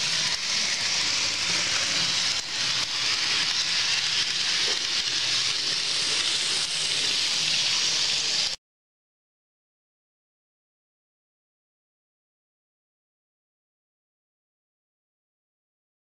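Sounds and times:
model train running on track: 0:00.0 - 0:08.6.

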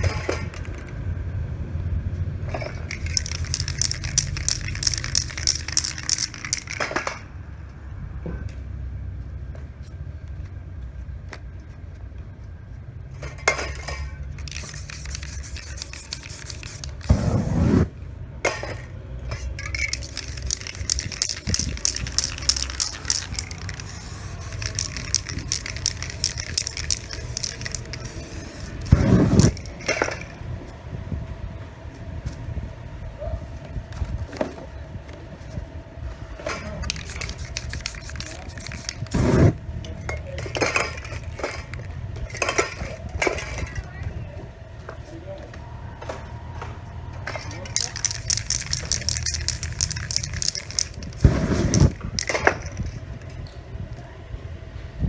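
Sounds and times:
spray paint can hissing: 0:02.8 - 0:07.1, 0:14.3 - 0:17.9, 0:19.6 - 0:30.4, 0:36.8 - 0:39.6, 0:47.7 - 0:53.0
steady low rumble: 0:14.3 - 0:44.8.

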